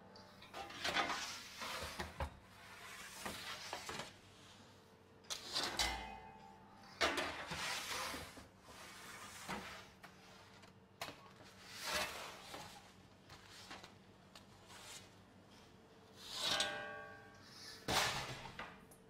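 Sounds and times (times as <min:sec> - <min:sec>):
metal peel scraping on oven floor: 0:00.5 - 0:04.1, 0:05.3 - 0:06.2, 0:07.0 - 0:10.0, 0:11.6 - 0:13.0, 0:16.2 - 0:18.7.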